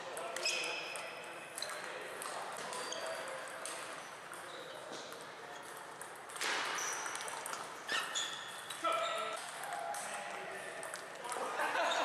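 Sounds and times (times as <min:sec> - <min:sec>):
distant ball clicks in hall: 0:00.0 - 0:12.0
shoes squeaking on floor: 0:00.4 - 0:01.8, 0:02.7 - 0:03.4, 0:04.0 - 0:05.8, 0:06.4 - 0:09.4.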